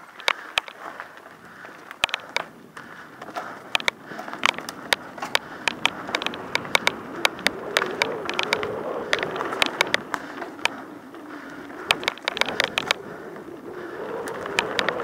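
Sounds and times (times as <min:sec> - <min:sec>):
bike clacking and rattling: 0:00.0 - 0:15.0
bike tyres on dirt trail: 0:00.0 - 0:15.0.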